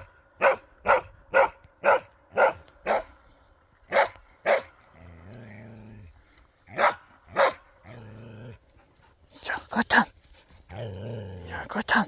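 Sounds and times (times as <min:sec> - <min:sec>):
dog barking: 0:00.4 - 0:03.1, 0:03.9 - 0:04.7, 0:06.7 - 0:07.6.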